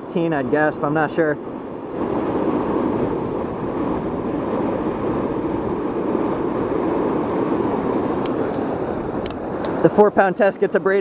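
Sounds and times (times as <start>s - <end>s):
river water pouring over dam: 0.0s - 11.0s.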